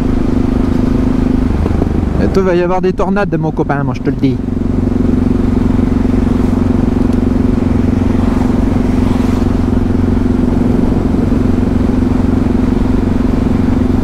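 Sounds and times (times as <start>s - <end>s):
motorcycle engine cruising: 0.0s - 14.0s
wind rushing: 6.3s - 14.0s.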